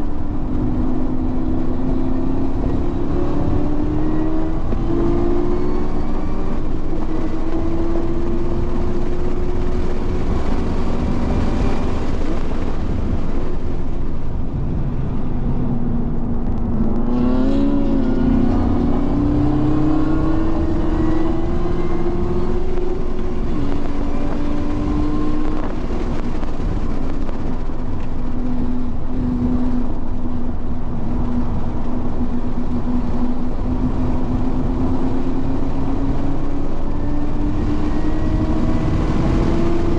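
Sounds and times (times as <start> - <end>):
car engine accelerating: 0.0 - 39.9
road and wind noise: 0.0 - 39.9.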